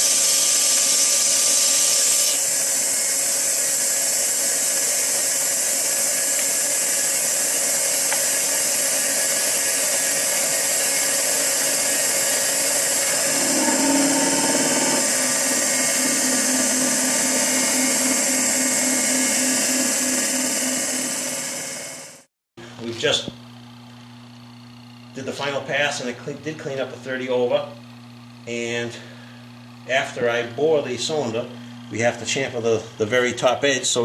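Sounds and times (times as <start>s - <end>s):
boring machine hiss and whine: 0.0s - 24.0s, 24.6s - 34.0s
low pulsing hum: 11.4s - 22.0s.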